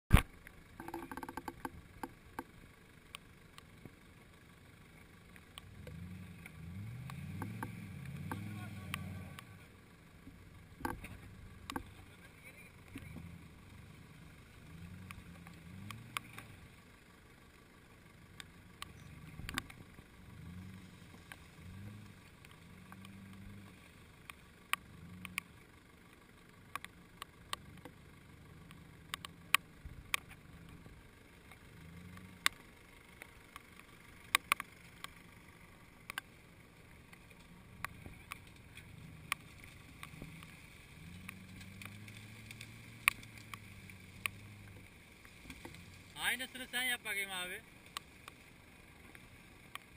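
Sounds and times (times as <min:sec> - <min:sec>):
sharp clicks: 0:00.1 - 0:03.7, 0:10.8 - 0:12.1, 0:14.9 - 0:16.6, 0:18.4 - 0:20.0, 0:21.2 - 0:28.0, 0:28.6 - 0:35.3, 0:36.0 - 0:46.9
car engine at low revs: 0:00.1 - 0:49.9.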